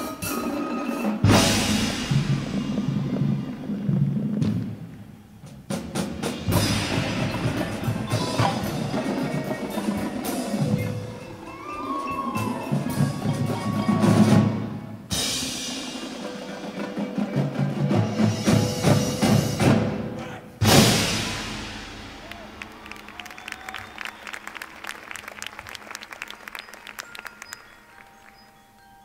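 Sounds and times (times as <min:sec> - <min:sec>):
cymbals: 0:00.0 - 0:24.3
marching drums: 0:00.0 - 0:24.5
marimbas playing: 0:06.5 - 0:19.8, 0:26.7 - 0:29.0.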